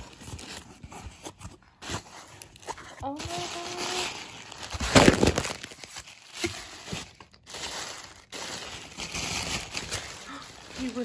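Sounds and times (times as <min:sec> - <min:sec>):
tissue paper rustling: 0:00.0 - 0:11.0.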